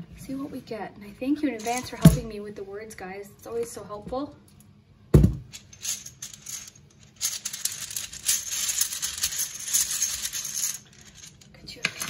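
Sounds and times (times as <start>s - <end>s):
game tiles rattling in cloth bag: 1.6s - 2.2s, 5.5s - 12.0s.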